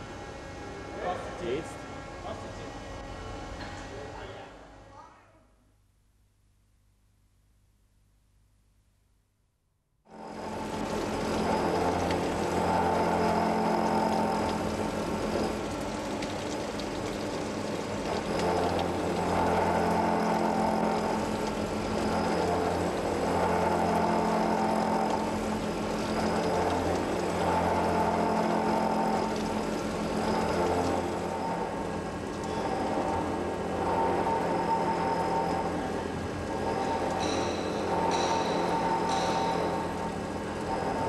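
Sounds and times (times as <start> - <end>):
lathe machine hum: 10.1 - 41.0.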